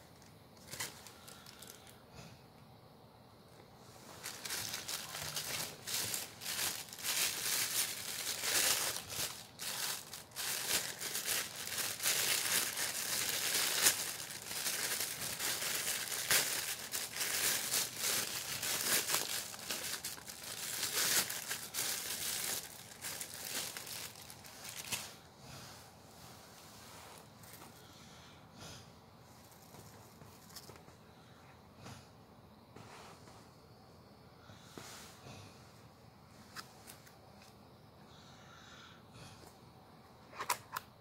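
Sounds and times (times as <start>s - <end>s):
plastic mailer bag crinkling: 0.0s - 1.9s, 4.1s - 25.2s.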